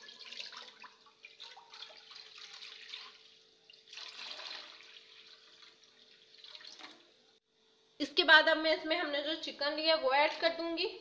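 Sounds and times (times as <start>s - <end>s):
water pouring into metal pan: 0.0s - 7.2s.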